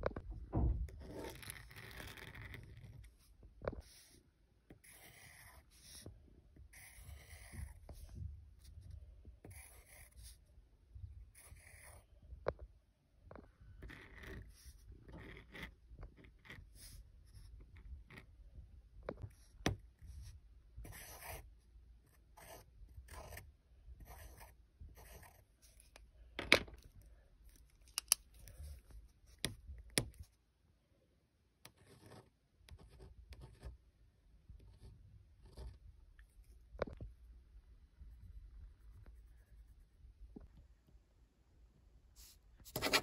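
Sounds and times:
pen scratching on paper: 0:01.0 - 0:08.8, 0:09.4 - 0:10.4, 0:11.3 - 0:12.0, 0:13.8 - 0:18.3, 0:19.2 - 0:26.0, 0:31.6 - 0:33.8, 0:42.2 - 0:43.0.

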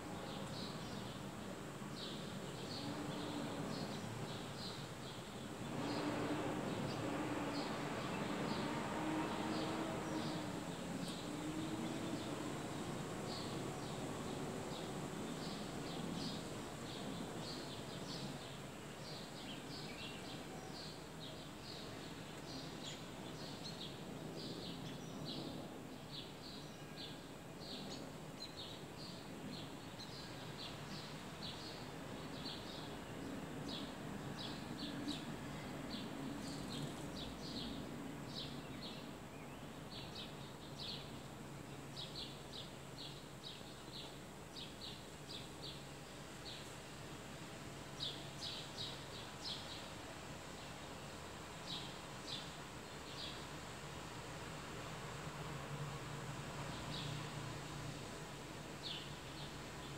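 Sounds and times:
sparrows chirping: 0:09.5 - 0:46.7, 0:58.8 - 0:59.9.

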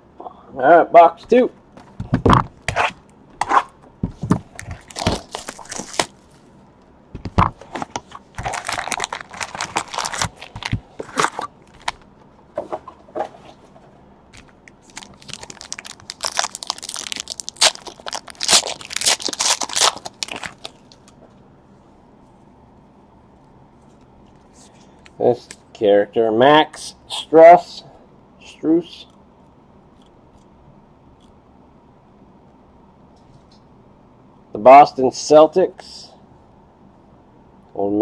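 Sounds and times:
foil pack tearing and crinkling: 0:04.6 - 0:06.4, 0:08.3 - 0:12.0, 0:14.4 - 0:21.0.

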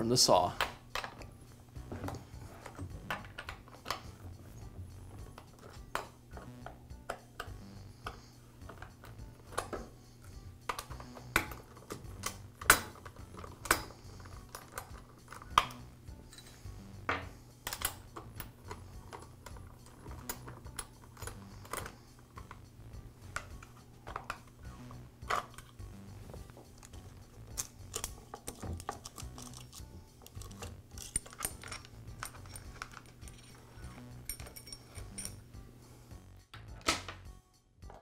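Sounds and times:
chainsaw parts clicking and clinking: 0:17.7 - 0:22.6, 0:25.2 - 0:25.8, 0:26.7 - 0:35.4.

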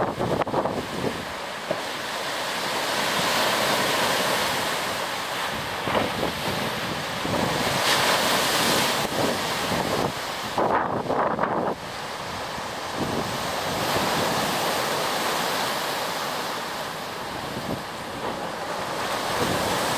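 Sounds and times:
wind buffeting the microphone: 0:00.0 - 0:02.0, 0:04.6 - 0:15.0, 0:17.1 - 0:19.9
waves washing up a beach: 0:00.0 - 0:19.9.

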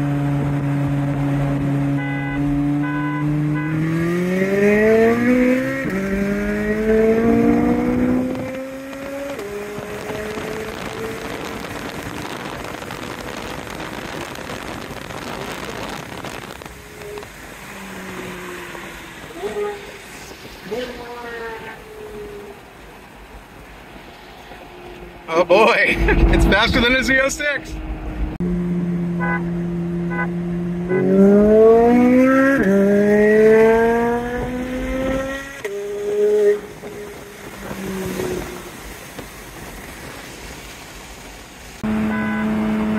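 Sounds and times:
car engine revving from cabin: 0:00.0 - 0:11.7, 0:27.8 - 0:36.7
wind and road noise: 0:00.0 - 0:42.9.

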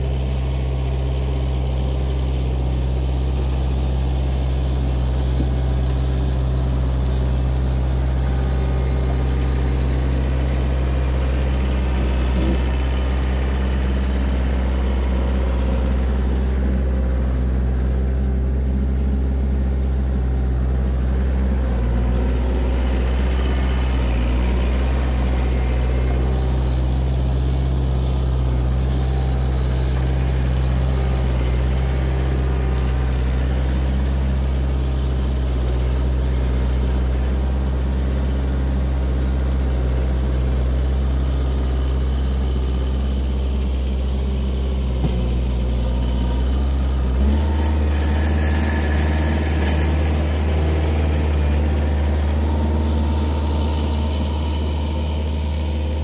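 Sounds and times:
tractor diesel engine running: 0:00.0 - 0:56.0
blade scraping gravel: 0:47.2 - 0:53.9.

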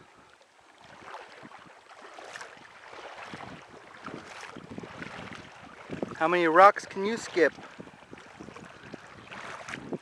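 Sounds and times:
wind buffeting microphone: 0:00.8 - 0:01.8, 0:02.5 - 0:10.0.

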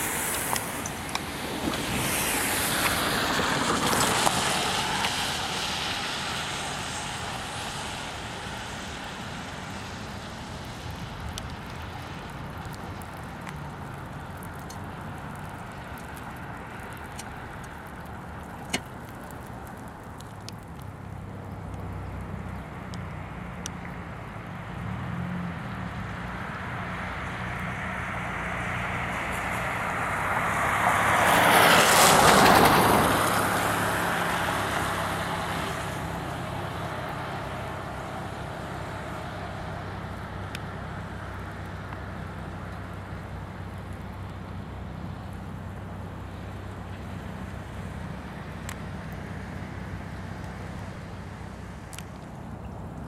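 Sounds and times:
low engine hum: 0:00.0 - 0:53.0
tyre hiss on wet road: 0:00.0 - 0:53.0.

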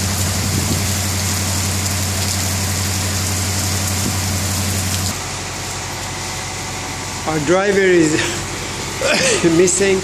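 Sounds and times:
heavy rain hissing: 0:00.0 - 0:06.3.

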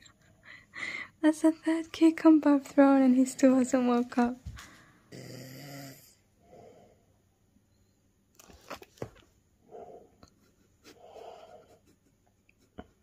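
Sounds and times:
faint breaths: 0:00.4 - 0:01.2, 0:04.5 - 0:05.1, 0:06.0 - 0:07.3, 0:09.6 - 0:11.8
man snoring: 0:05.1 - 0:06.2.

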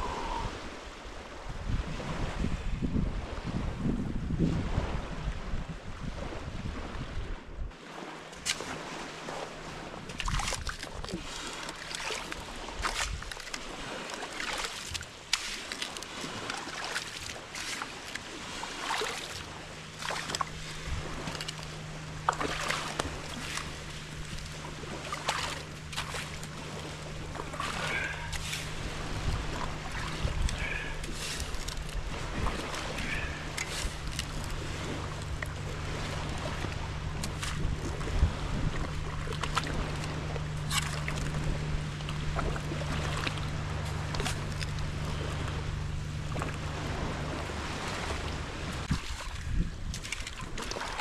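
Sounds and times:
shovel scraping wet sand: 0:14.1 - 0:18.1, 0:27.5 - 0:29.2, 0:30.0 - 0:35.3
steady low hum: 0:14.9 - 0:50.9.

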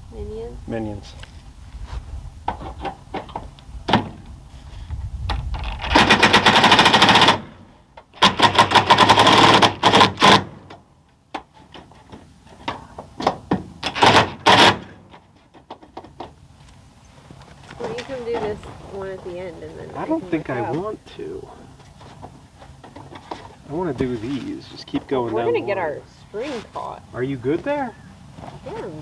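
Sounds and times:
impact driver hammering screws: 0:06.0 - 0:07.5, 0:08.2 - 0:10.8, 0:13.2 - 0:15.0.

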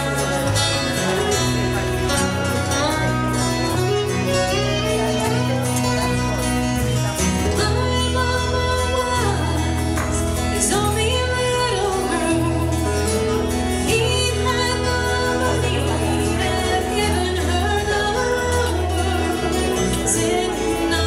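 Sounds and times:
acoustic guitar: 0:00.0 - 0:21.0
bowed fiddle: 0:00.0 - 0:21.0
electric bass: 0:00.0 - 0:21.0
woman singing: 0:07.2 - 0:21.0.

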